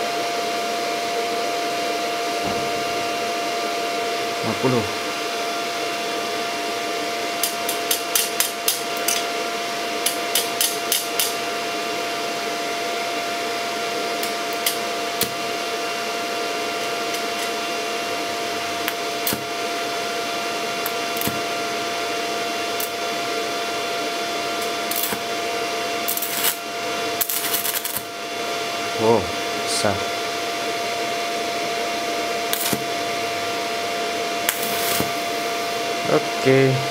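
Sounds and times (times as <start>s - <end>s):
welder whirring and whining: 0.0s - 36.9s
arc clicks and crackles: 22.7s - 23.0s, 24.6s - 25.3s, 26.1s - 26.6s, 27.2s - 28.1s, 32.5s - 32.9s, 34.4s - 35.2s
electrode scratching on steel: 27.2s - 28.0s, 34.5s - 35.0s.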